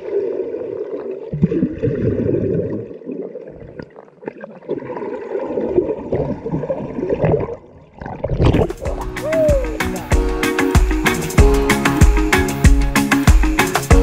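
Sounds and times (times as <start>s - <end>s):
muffled underwater creek gurgling: 0.0s - 9.7s.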